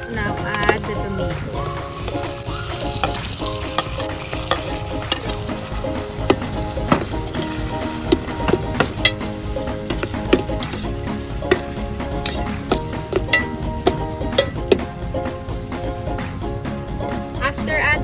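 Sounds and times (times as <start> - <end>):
tomatoes sizzling in oil: 0.0 - 17.9
metal spoon scraping pot: 2.9 - 14.8.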